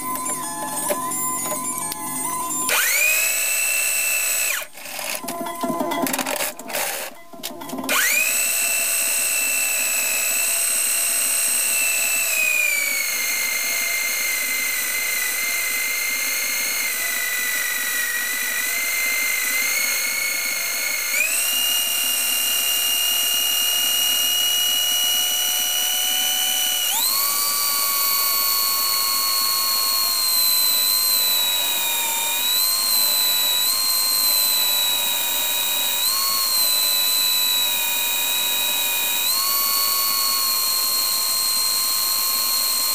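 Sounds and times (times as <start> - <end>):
drill-driven lathe whining: 0.0 - 7.1, 7.8 - 42.9.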